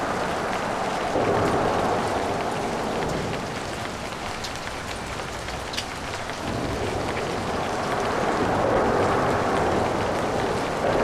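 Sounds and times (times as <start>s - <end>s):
rain falling: 0.0s - 11.0s
traffic passing on wet road: 0.0s - 11.0s.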